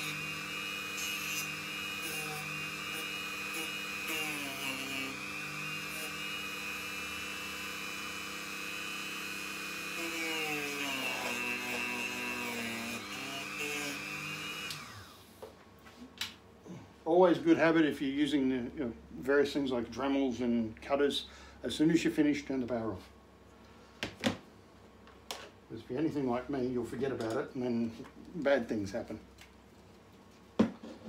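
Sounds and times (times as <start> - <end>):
rotary tool whine: 0.0 - 15.3.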